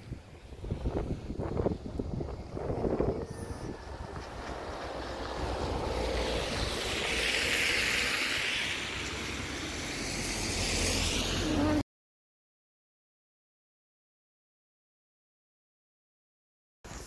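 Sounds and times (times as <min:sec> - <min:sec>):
wind rumbling on microphone: 0:00.0 - 0:11.8
vehicle passing: 0:00.4 - 0:11.8.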